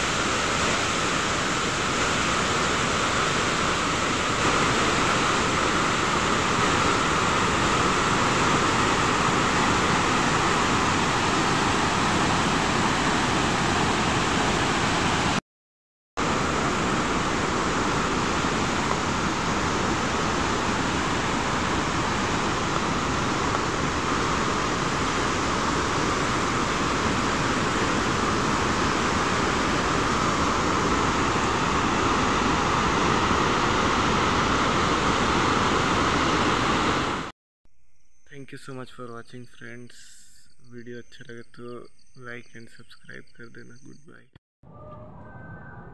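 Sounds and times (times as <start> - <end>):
waterfall and rapids rushing: 0.0 - 15.4, 16.2 - 37.3.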